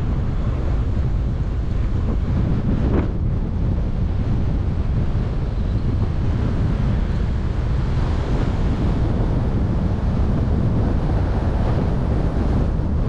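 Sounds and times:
car road noise: 0:00.0 - 0:13.0
wind rushing over microphone: 0:00.0 - 0:13.0.

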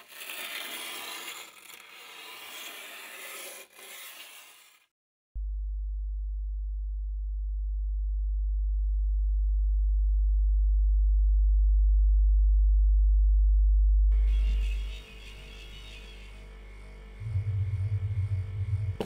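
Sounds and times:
sub-bass sine drone: 0:05.4 - 0:19.0.

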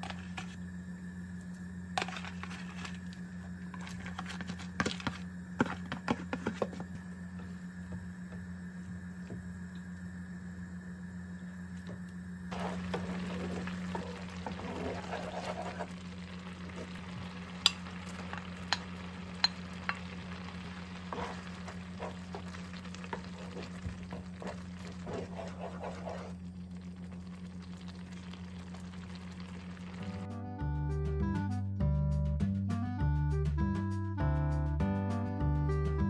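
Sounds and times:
porridge bubbling in a pan: 0:00.0 - 0:30.3
low hum: 0:00.0 - 0:30.6
wooden spoon scraping: 0:02.0 - 0:03.1, 0:03.7 - 0:06.9, 0:12.5 - 0:17.0, 0:20.6 - 0:26.4.

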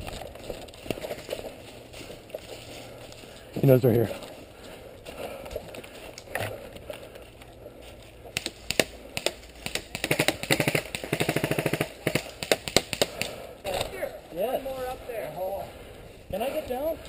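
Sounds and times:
footsteps crunching in dry leaves: 0:00.0 - 0:06.2
airsoft guns firing: 0:08.4 - 0:14.0.

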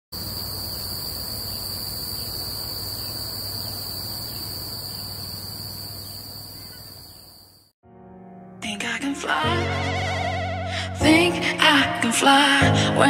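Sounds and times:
field insects chorus: 0:00.2 - 0:07.7.

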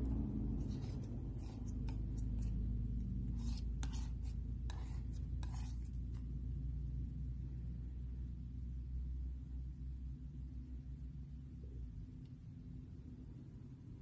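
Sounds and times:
steady low hum: 0:00.0 - 0:14.0
palette knife scraping paint: 0:00.4 - 0:06.3.

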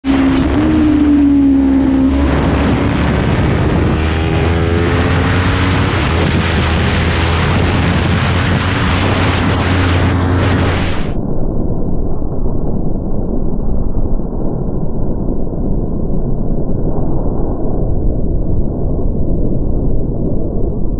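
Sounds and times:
motorcycle engine accelerating: 0:00.0 - 0:11.2
wind noise: 0:00.0 - 0:20.9.

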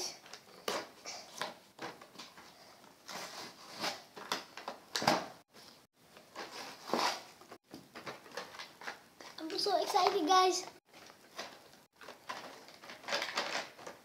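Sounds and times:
packaging rustling and tearing: 0:10.9 - 0:14.0.

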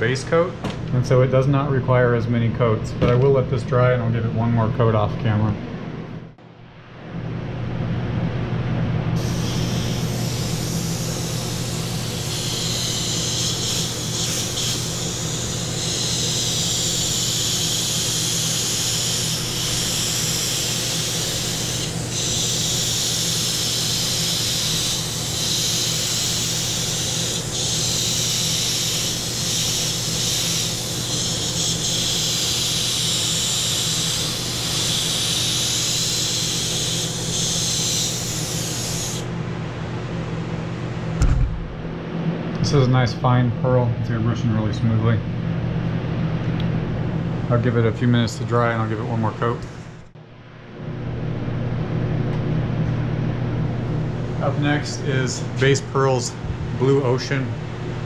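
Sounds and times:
airbrush spraying hiss: 0:09.2 - 0:39.3
low hum: 0:36.8 - 0:44.2.

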